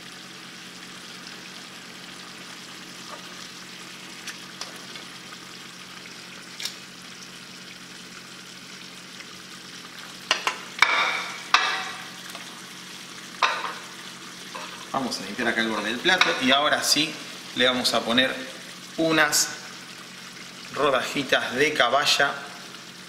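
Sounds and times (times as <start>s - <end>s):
sauce sizzling: 0.0s - 23.0s
tongs clacking in pan: 10.3s - 12.5s.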